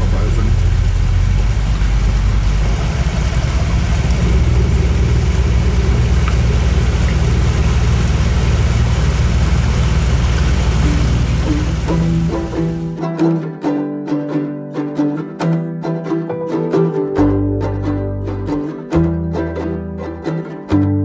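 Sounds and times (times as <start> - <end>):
boat engine droning: 0.0 - 13.3.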